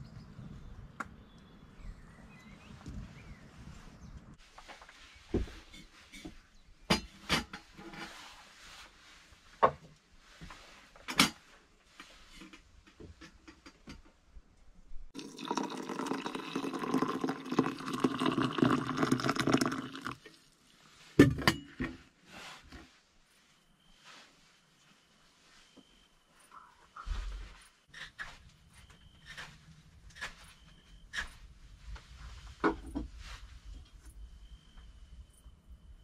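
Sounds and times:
water pouring into metal mug: 0:15.2 - 0:20.4.

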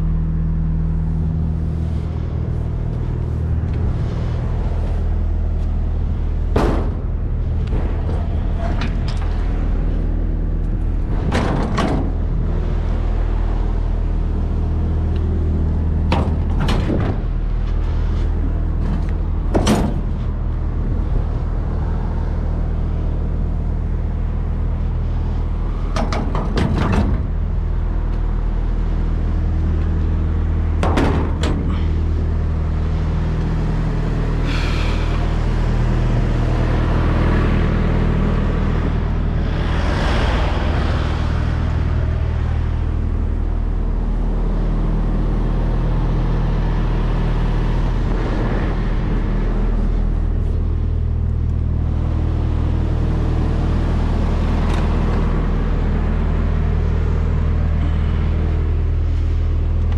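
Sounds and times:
diesel engine idling: 0:00.0 - 0:59.9
latch and lid knocks and clanks: 0:16.1 - 0:17.2, 0:19.5 - 0:20.2, 0:25.9 - 0:27.3, 0:30.8 - 0:31.8.

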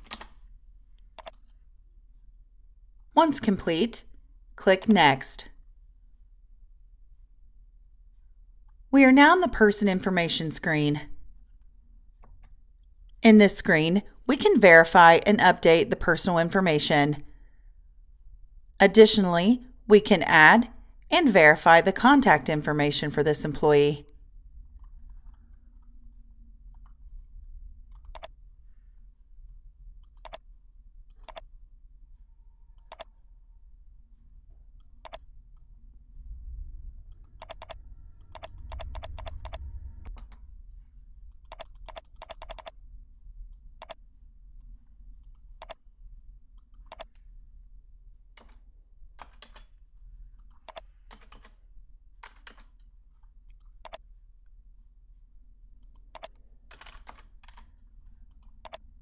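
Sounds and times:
keyboard keystrokes: 0:00.0 - 0:00.4, 0:01.2 - 0:01.5, 0:27.9 - 0:28.3, 0:31.1 - 0:31.4, 0:32.8 - 0:33.1, 0:37.4 - 0:40.3, 0:41.4 - 0:42.7, 0:45.2 - 0:45.8, 0:46.6 - 0:47.1, 0:50.4 - 0:51.6, 0:55.9 - 0:57.7
faint low hum: 0:00.0 - 0:59.0
mouse clicks: 0:01.2 - 0:01.5, 0:27.9 - 0:28.3, 0:30.0 - 0:30.4, 0:31.1 - 0:31.4, 0:32.8 - 0:33.1, 0:37.4 - 0:39.6, 0:41.4 - 0:42.8, 0:43.8 - 0:44.0, 0:45.2 - 0:45.8, 0:46.6 - 0:47.2, 0:50.4 - 0:50.8, 0:53.5 - 0:54.0, 0:55.8 - 0:56.4, 0:58.3 - 0:58.8.

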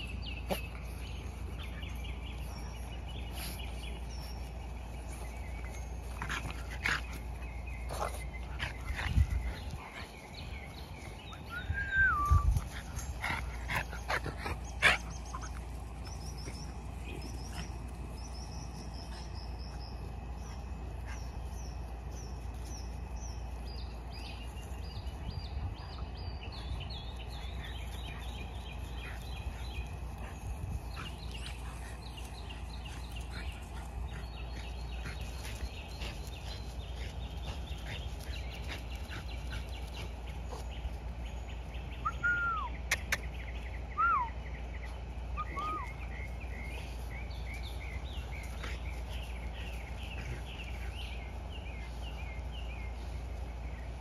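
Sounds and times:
birds chirping and singing: 0:00.0 - 0:54.0
steady low hum: 0:00.0 - 0:54.0.

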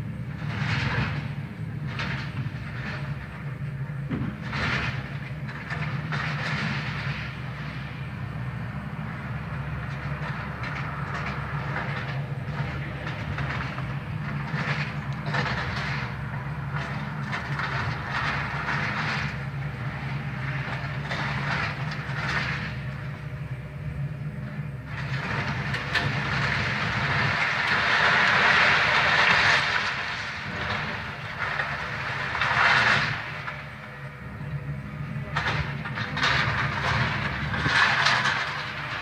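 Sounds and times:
excavator diesel engine hum: 0:00.0 - 0:39.0
debris crunching and clattering: 0:09.9 - 0:19.4, 0:24.9 - 0:33.8, 0:35.3 - 0:39.0.

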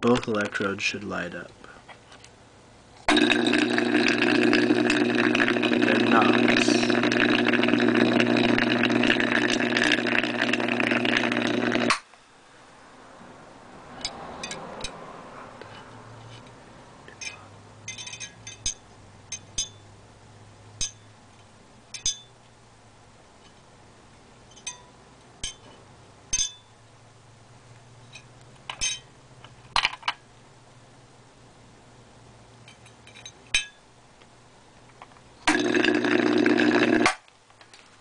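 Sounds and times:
low electrical hum: 0:00.0 - 0:38.0.

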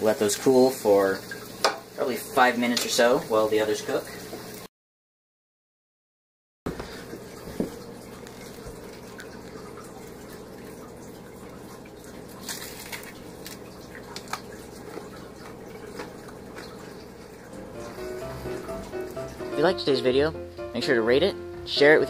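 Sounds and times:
crunchy fried food crackling: 0:08.1 - 0:10.4, 0:12.1 - 0:19.3.

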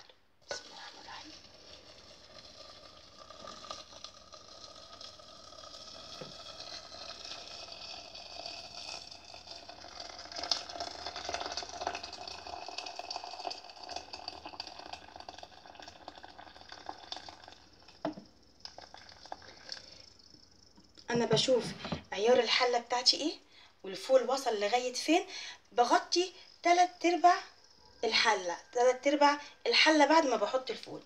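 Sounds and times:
water pouring from kettle: 0:00.5 - 0:20.4
kettle clunk: 0:18.0 - 0:18.3, 0:21.1 - 0:22.1.

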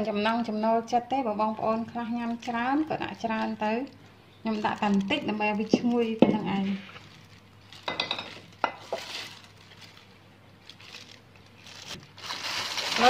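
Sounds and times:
soft rustle: 0:06.0 - 0:07.8.

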